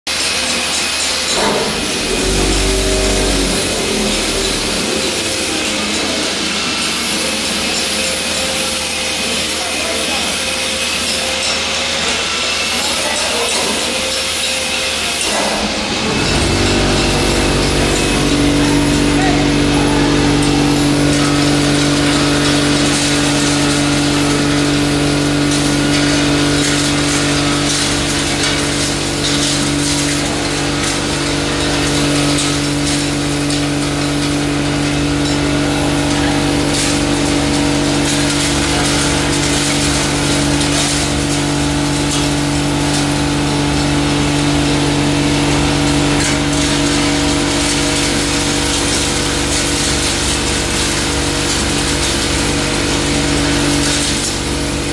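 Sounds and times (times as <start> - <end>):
grinding noise: 1.1 - 9.0, 15.0 - 30.0
machine hum: 1.2 - 9.0, 15.0 - 54.9.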